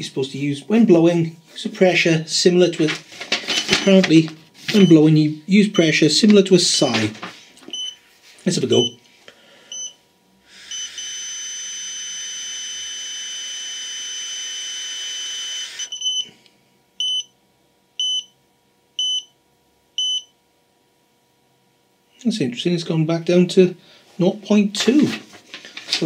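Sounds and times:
breathalyser beeps: 9.7 - 10.0, 10.6 - 11.2, 15.8 - 16.3.

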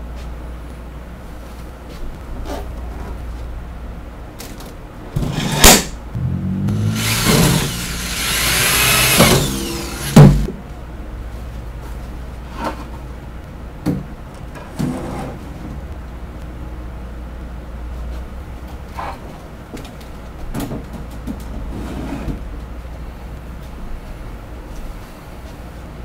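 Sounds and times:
screw gun whining: 6.8 - 10.4
shelf panels knocking: 9.2 - 10.5.

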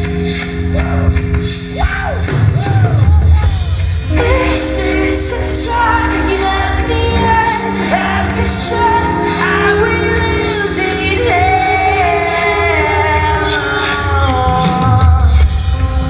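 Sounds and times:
bass guitar: 0.0 - 16.0
keyboard chords: 0.0 - 16.0
drums with cymbals: 1.5 - 9.6.

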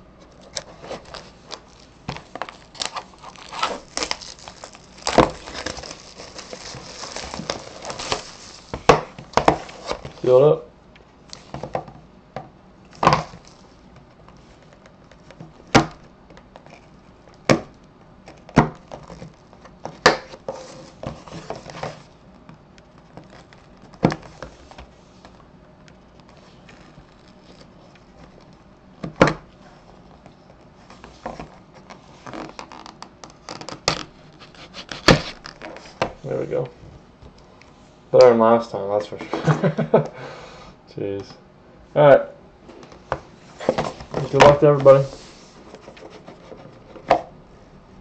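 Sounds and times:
knife scraping box tape: 33.6 - 35.5.

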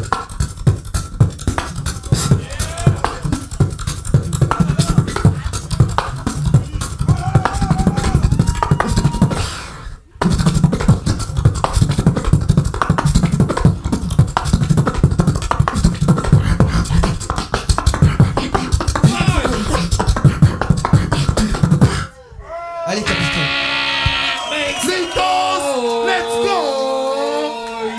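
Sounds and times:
beatboxing through a microphone: 0.0 - 22.2
gliding vocal tones: 0.0 - 22.2.

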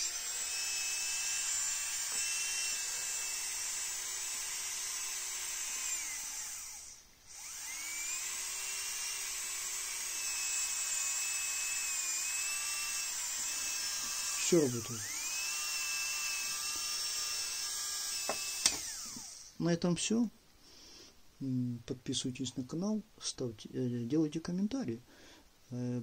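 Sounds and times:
handpiece motor high whine: 0.0 - 19.6.

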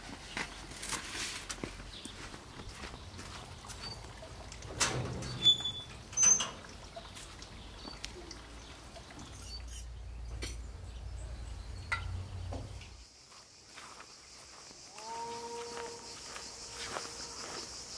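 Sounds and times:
gate squeaking: 3.8 - 6.7
metal gate clanking: 4.6 - 6.8.

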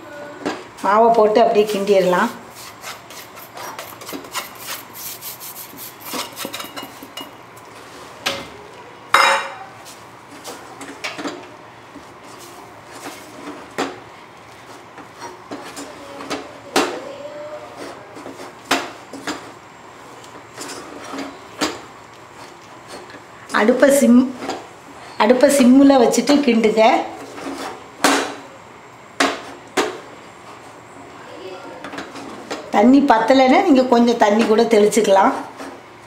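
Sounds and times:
spatula scraping dough in saucepan: 1.6 - 7.2, 14.5 - 16.4, 17.5 - 19.6, 20.2 - 21.5, 27.0 - 27.9, 34.3 - 35.8.

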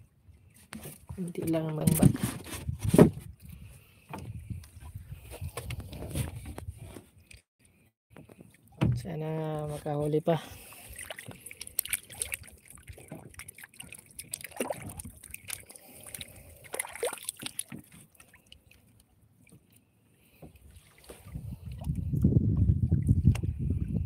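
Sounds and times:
water lapping against boat: 8.1 - 24.0
water drips and plops: 10.8 - 19.7.

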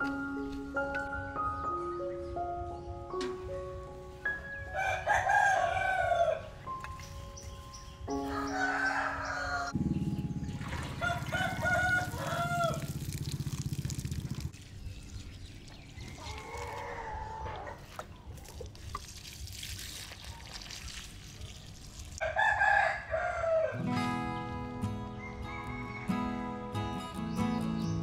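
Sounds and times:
rooster crowing: 4.7 - 6.5, 8.2 - 9.8, 11.0 - 13.0, 22.2 - 23.9, 25.2 - 26.4
acoustic guitar music: 23.7 - 28.0.

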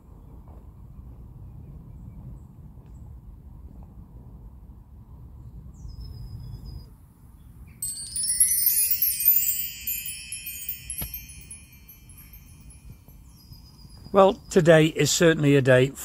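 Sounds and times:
wind chimes tinkling: 7.8 - 14.7.

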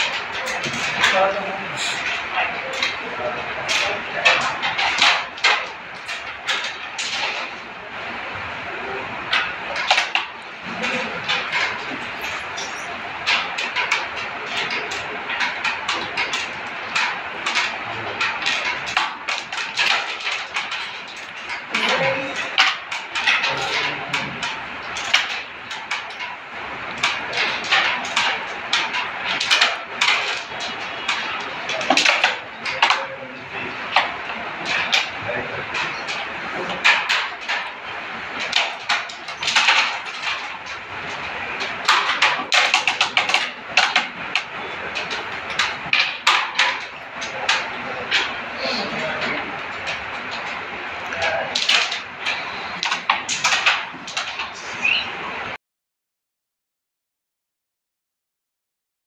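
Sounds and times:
carrom pieces clicking on board: 3.6 - 7.6, 9.3 - 55.0.

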